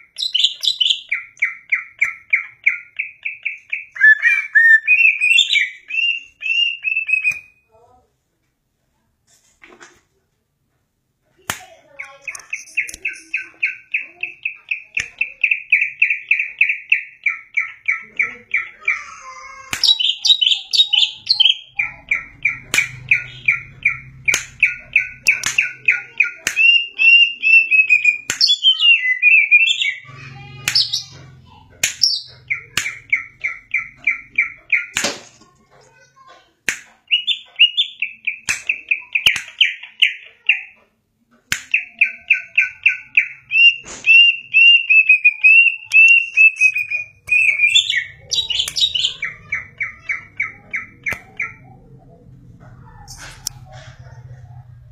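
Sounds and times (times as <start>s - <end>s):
bird singing rapid sharp notes: 0.0s - 7.6s, 19.8s - 35.0s, 37.1s - 40.7s, 41.7s - 51.8s
sharp clicks: 11.5s - 15.8s.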